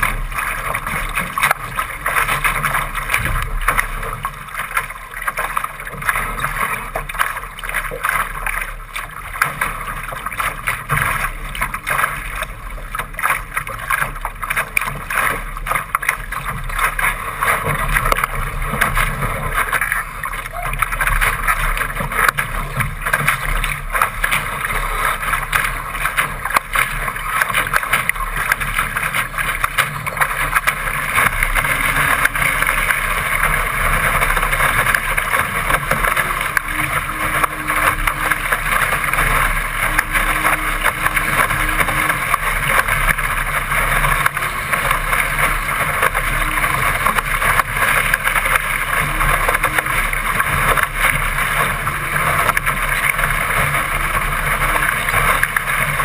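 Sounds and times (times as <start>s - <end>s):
water rushing along boat hull: 0.0s - 56.0s.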